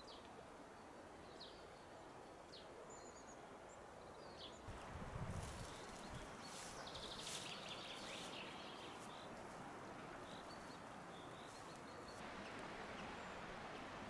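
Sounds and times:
small birds chirping: 0.0s - 14.0s
river running over stones: 6.3s - 14.0s.

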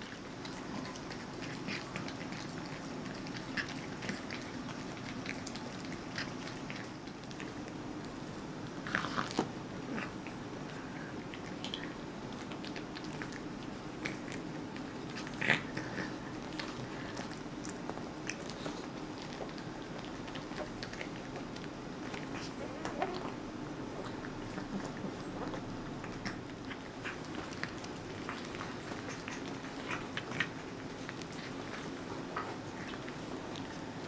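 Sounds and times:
cats chewing on bone: 0.0s - 34.0s
steady low hum: 0.0s - 34.0s.

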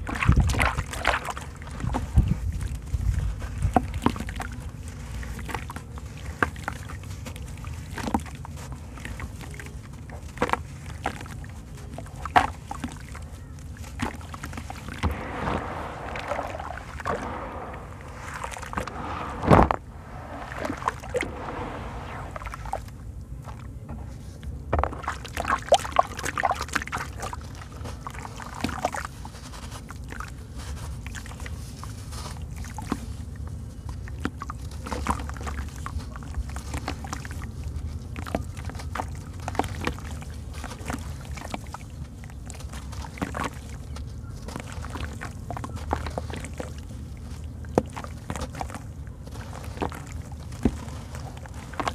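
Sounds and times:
water sloshing and dripping: 0.0s - 23.7s, 24.8s - 51.9s
gritty crunching and crackling: 15.0s - 22.9s.

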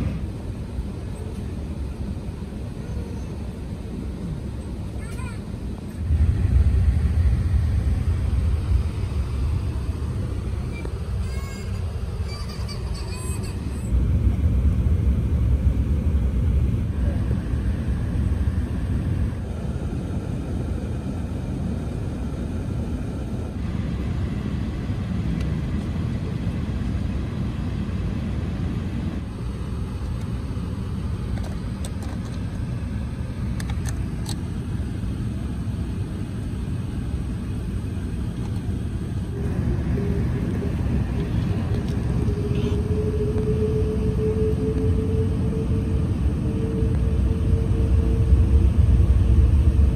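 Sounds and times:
airliner cabin rumble: 0.0s - 49.9s
steady hum rising in pitch: 5.9s - 12.8s, 13.6s - 22.0s, 39.2s - 49.9s.

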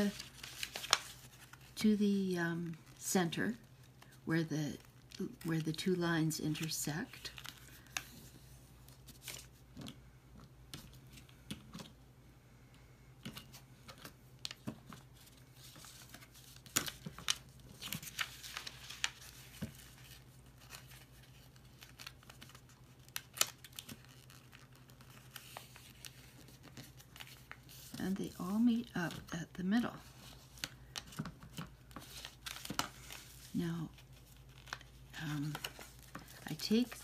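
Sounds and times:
paper rustling and crinkling: 0.0s - 1.8s, 4.8s - 10.0s, 13.2s - 29.3s, 29.9s - 37.0s.

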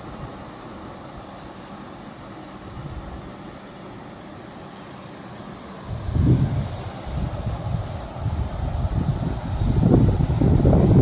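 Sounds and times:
river rushing over rapids: 0.0s - 11.0s.

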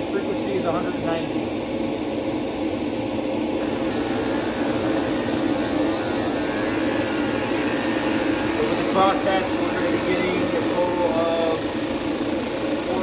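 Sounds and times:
machinery whooshing drone: 3.6s - 13.0s.

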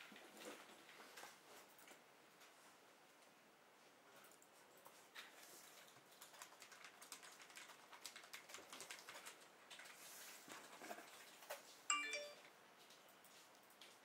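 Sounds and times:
faint keyboard typing: 4.0s - 14.0s.

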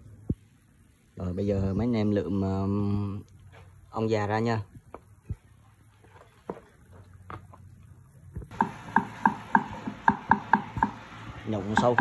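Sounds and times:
knife chopping on cutting board: 8.5s - 11.0s.

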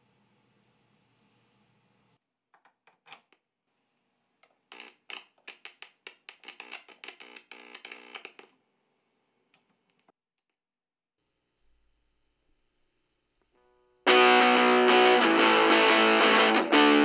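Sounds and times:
amplifier crackling and popping: 4.4s - 8.6s.

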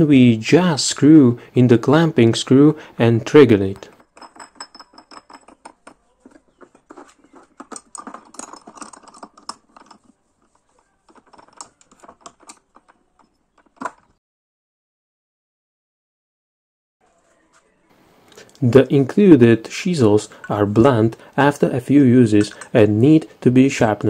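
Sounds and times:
metal plate screwed onto thread: 3.7s - 14.2s, 22.3s - 22.8s.

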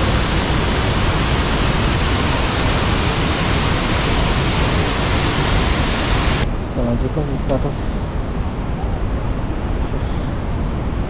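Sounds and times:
waterfall rushing: 0.0s - 6.4s.

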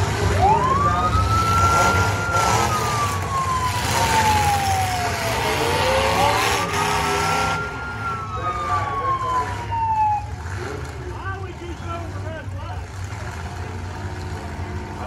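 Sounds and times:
car engines running: 0.0s - 15.0s
siren winding up and down: 0.4s - 10.3s.

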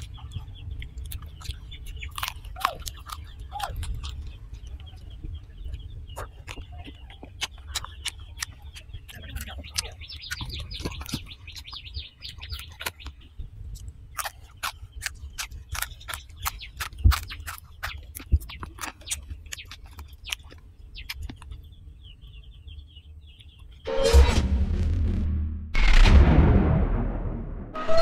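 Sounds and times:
chewing and crunching: 0.0s - 23.8s
small birds chirping: 0.0s - 23.9s
heavier thuds: 24.2s - 28.0s.

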